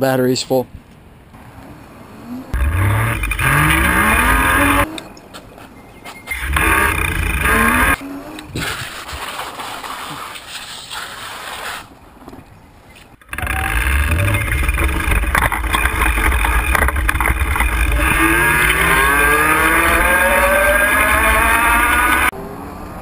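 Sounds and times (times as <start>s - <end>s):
electric hub motor whining: 2.5s - 5.0s, 6.3s - 8.5s, 13.2s - 22.3s
rattling and clicks: 2.6s - 5.1s, 6.3s - 8.0s, 13.2s - 22.3s
low rumble: 13.2s - 22.3s.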